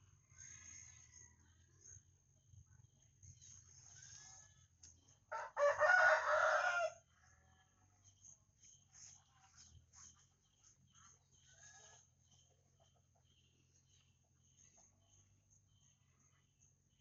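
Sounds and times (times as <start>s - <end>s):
rooster crowing: 5.3s - 7.0s.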